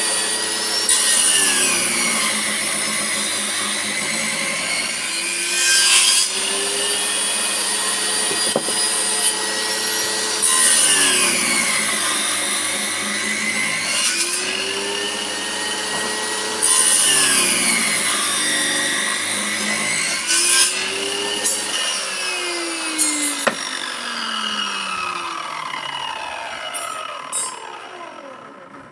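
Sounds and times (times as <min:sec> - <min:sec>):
table saw whining: 0:00.0 - 0:28.9.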